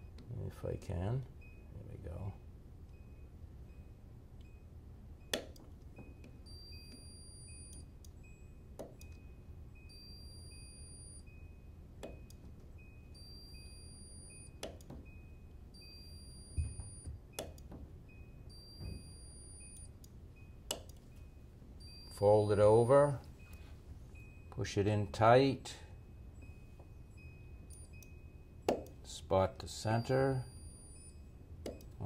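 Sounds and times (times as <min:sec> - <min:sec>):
faint electronic beep: 0:06.0 - 0:17.5, 0:18.1 - 0:24.6, 0:25.6 - 0:28.6, 0:29.7 - 0:32.0.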